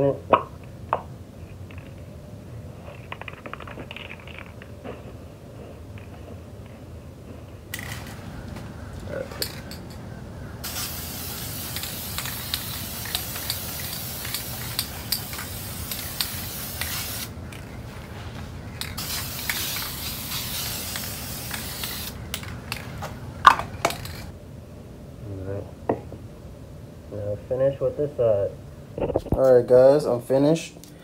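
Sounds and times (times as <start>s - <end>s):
aerosol can spraying hiss: 10.6s - 17.3s, 19.0s - 22.2s.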